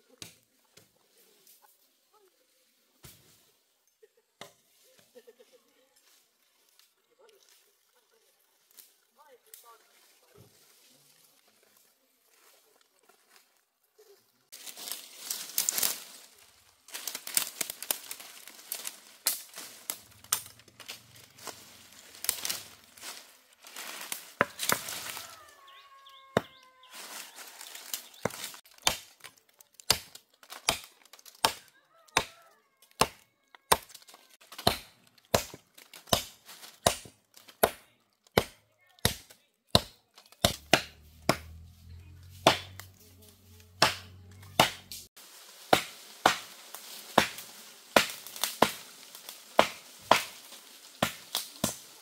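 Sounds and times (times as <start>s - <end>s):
branches and leaves crackling: 4.8s - 52.0s
blade chopping wood: 28.2s - 31.6s, 33.0s - 41.7s, 42.3s - 43.0s, 43.7s - 45.1s, 45.7s - 48.8s, 49.6s - 50.4s, 51.0s - 51.9s.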